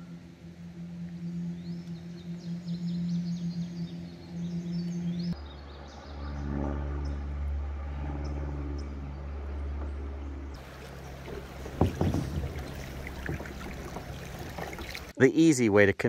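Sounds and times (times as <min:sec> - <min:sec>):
sustained musical tones: 0:00.0 - 0:11.9
paddle splash: 0:10.6 - 0:15.2
water rippling around a kayak: 0:10.6 - 0:15.2.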